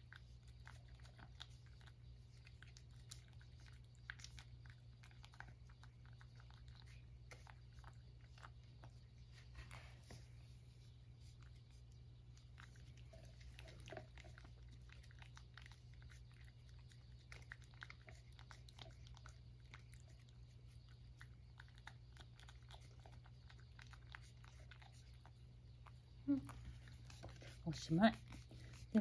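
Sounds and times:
cat licking from a dish: 0.0s - 29.0s.

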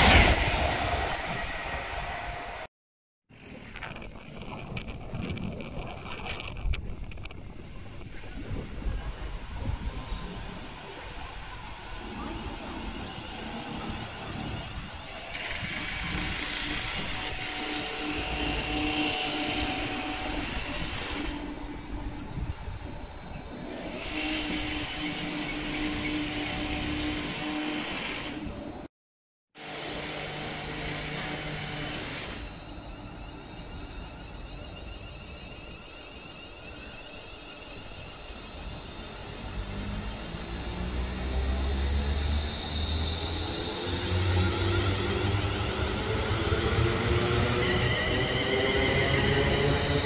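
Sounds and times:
train traction hum: 3.4s - 28.8s, 30.2s - 50.0s.

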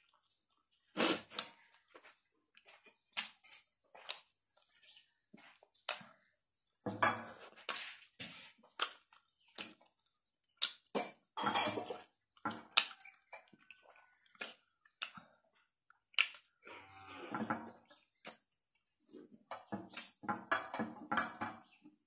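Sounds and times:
person chewing with wet smacks: 0.0s - 4.8s, 5.5s - 6.3s, 7.5s - 11.4s, 12.1s - 16.6s, 18.1s - 20.2s.

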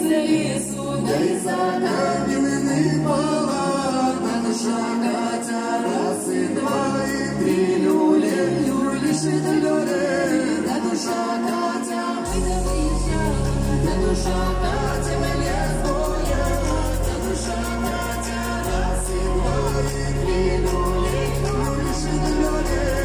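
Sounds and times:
man and woman singing: 0.0s - 23.0s
amplified music with bass: 12.2s - 23.0s.

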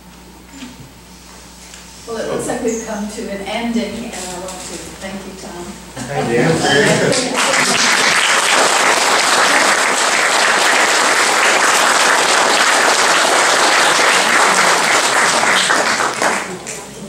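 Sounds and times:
audience applauding: 6.8s - 16.9s.

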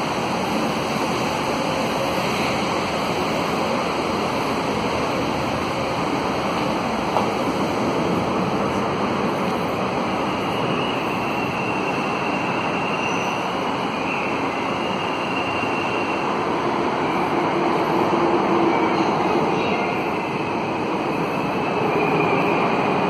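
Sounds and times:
metro station concourse roar: 0.0s - 23.0s.

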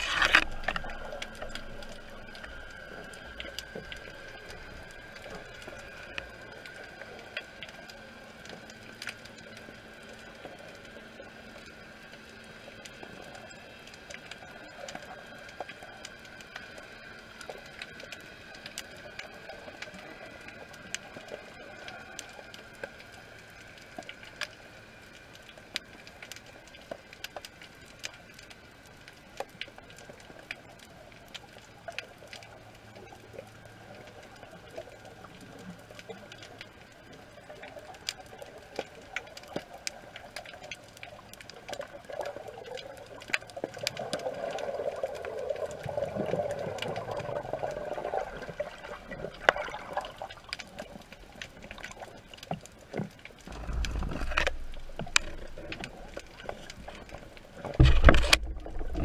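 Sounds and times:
faint steady hiss: 0.0s - 59.0s
underwater clicks and crackles: 0.0s - 59.0s
low rumble: 53.5s - 57.0s.

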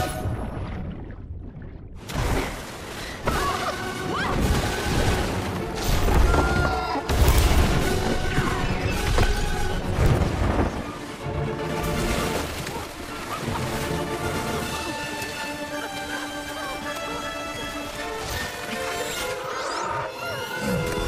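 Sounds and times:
film soundtrack music: 0.0s - 21.0s
crashing and booming impacts: 4.3s - 13.3s.

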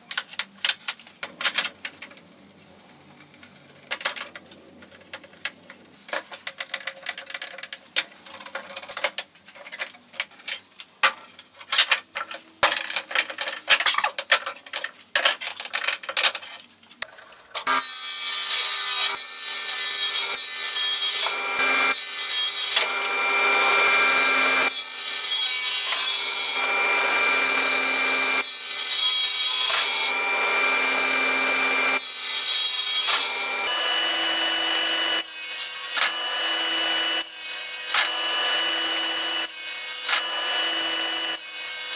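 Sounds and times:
clamps clicking and knocking: 3.2s - 17.7s
table saw cutting wood: 17.6s - 41.9s.

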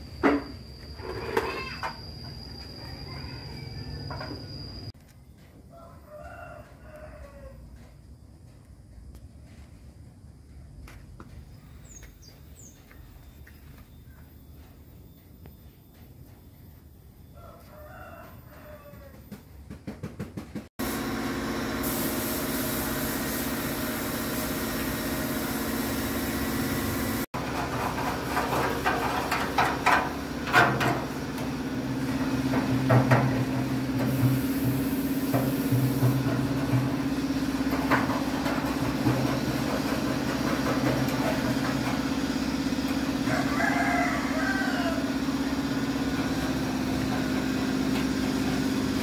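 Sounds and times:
small motor humming: 28.5s - 49.0s.

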